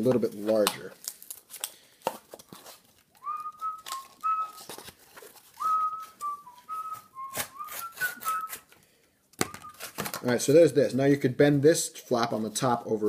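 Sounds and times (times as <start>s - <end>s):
person whistling tune: 3.2s - 4.7s, 5.6s - 8.6s, 9.4s - 9.8s
knife cutting cardboard: 7.2s - 8.6s.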